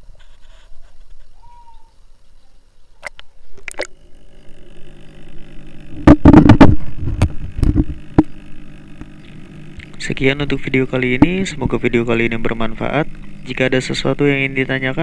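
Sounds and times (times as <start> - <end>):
steady low hum: 0.0 - 15.0
camera knocks: 6.0 - 8.3
muffled knocks underwater: 6.1 - 8.3.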